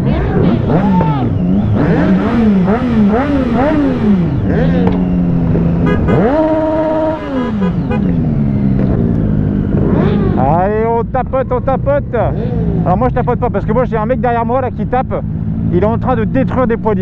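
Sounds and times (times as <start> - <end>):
motorcycle engines revving: 0.0 - 17.0.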